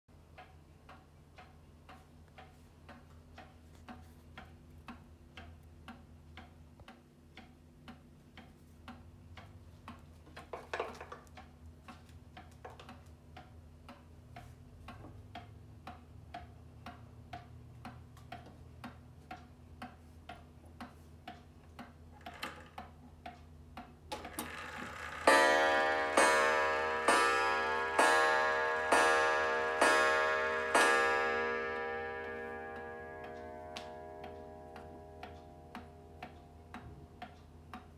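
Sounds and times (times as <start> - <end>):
pendulum wall clock ticking: 0.1 - 37.9
clock gong ringing: 24.4 - 36.7.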